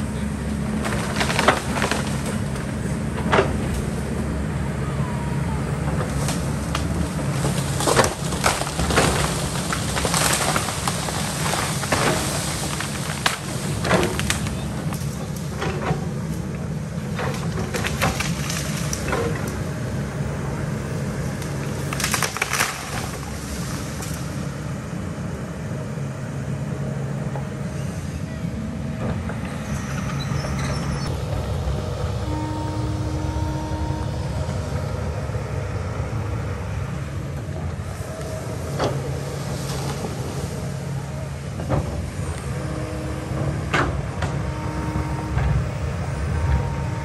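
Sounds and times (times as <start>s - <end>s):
excavator diesel engine running: 0.0s - 47.0s
knocks and scrapes on dirt and rock: 0.7s - 3.9s, 6.1s - 16.1s.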